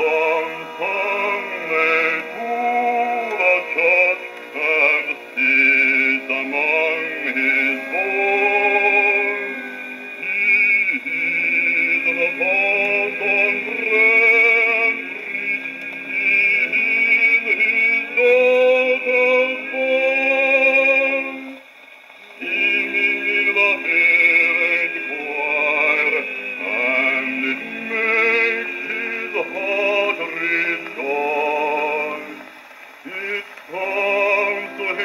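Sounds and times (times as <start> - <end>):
man singing with vibrato: 0.0 - 21.7, 22.3 - 35.0
orchestra on old gramophone record: 0.0 - 35.0.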